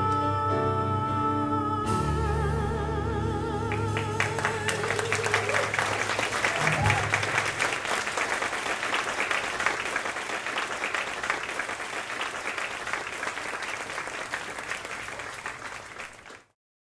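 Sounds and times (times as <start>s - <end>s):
audience applauding: 3.7s - 16.6s.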